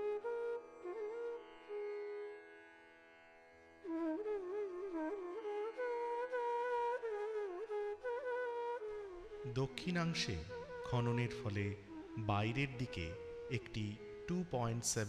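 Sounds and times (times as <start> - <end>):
ornamented melody: 4.2 - 14.5.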